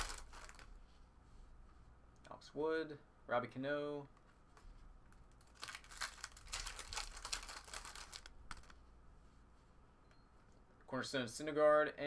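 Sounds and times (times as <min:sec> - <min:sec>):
foil pack tearing and crinkling: 0:00.0 - 0:00.6, 0:05.5 - 0:08.7.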